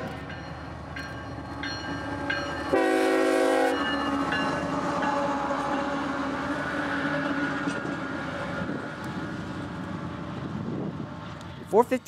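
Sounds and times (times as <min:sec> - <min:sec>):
diesel locomotives passing: 0:00.0 - 0:12.0
train air horn: 0:02.7 - 0:03.8.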